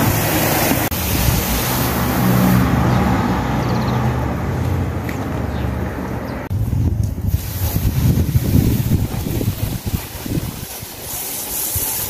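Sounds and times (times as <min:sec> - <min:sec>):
garden hose spraying water: 0:00.0 - 0:03.6, 0:06.6 - 0:12.0.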